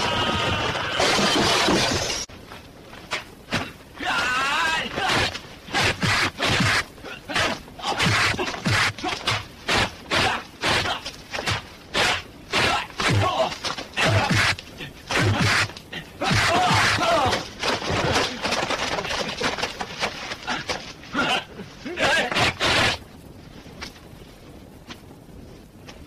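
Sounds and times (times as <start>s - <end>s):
fighters shouting and grunting: 3.6s - 17.6s, 20.4s - 23.0s
punch and kick impacts: 5.0s - 15.7s.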